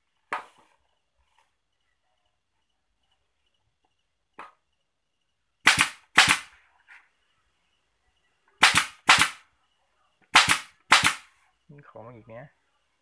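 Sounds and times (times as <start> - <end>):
pneumatic staple gun firing: 8.6 - 9.4, 10.4 - 11.2.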